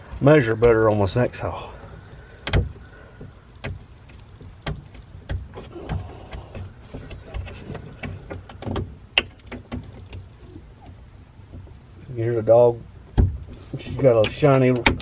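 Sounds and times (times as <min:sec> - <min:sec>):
sharp clicks and light knocks: 0:01.8 - 0:11.8, 0:13.1 - 0:15.0.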